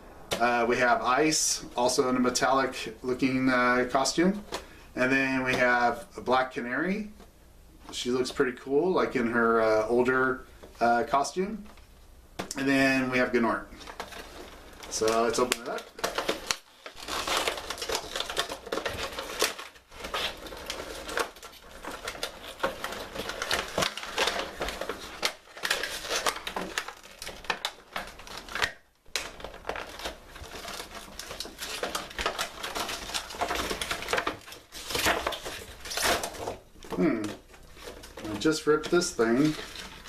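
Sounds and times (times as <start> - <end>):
plastic packaging crinkling: 12.4 - 40.0
cardboard tearing: 13.8 - 40.0.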